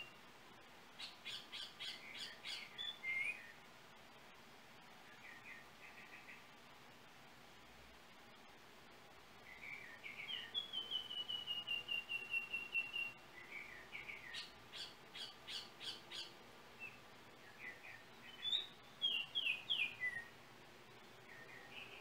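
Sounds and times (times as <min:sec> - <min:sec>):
oriole whistled song: 0:00.0 - 0:00.2, 0:01.3 - 0:03.5, 0:09.5 - 0:20.3.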